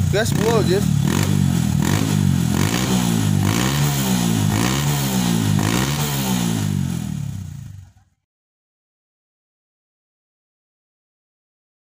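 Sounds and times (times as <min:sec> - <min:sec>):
motorcycle engine revving: 0:00.0 - 0:08.0.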